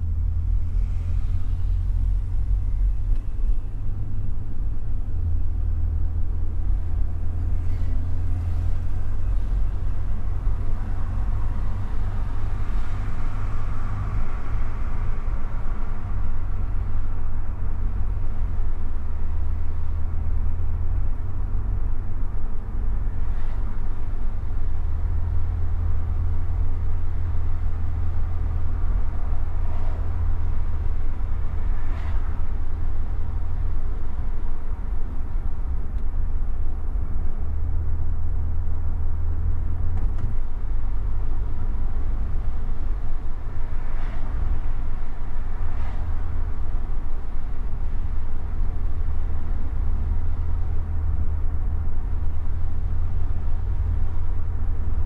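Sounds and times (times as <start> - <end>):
car engine and road noise: 0.0 - 55.0.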